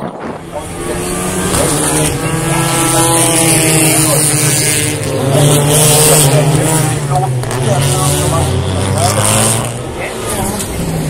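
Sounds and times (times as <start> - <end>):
race car engines at speed: 0.0 - 11.0.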